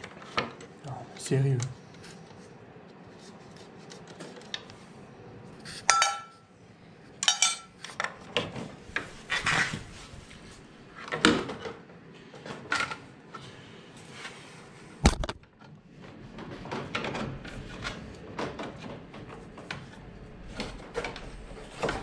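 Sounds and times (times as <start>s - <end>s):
clatter of handling parts: 5.9s - 6.4s, 7.2s - 9.9s
metal parts clinking on steel tray: 7.2s - 7.7s.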